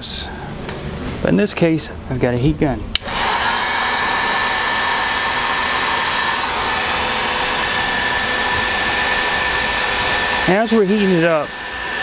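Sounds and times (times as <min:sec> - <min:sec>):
heat gun blowing air: 0:03.0 - 0:12.0.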